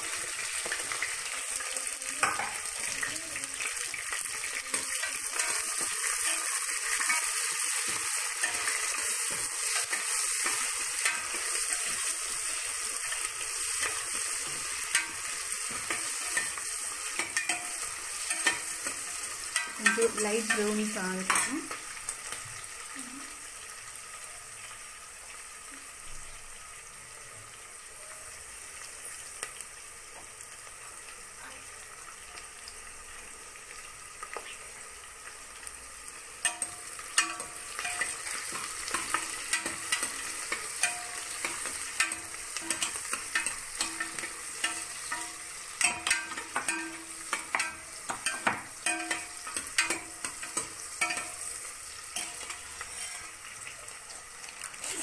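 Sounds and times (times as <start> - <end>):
food sizzling in oil: 0.0 - 55.0
ladle clinking and scraping pot: 36.4 - 51.5, 52.1 - 53.4.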